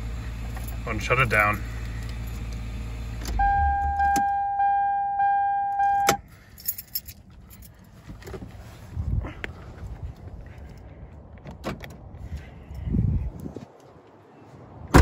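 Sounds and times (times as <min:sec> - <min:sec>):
car engine switching off: 0:00.0 - 0:04.7
key-reminder warning tone: 0:03.4 - 0:06.2
keys jangling: 0:06.3 - 0:07.9.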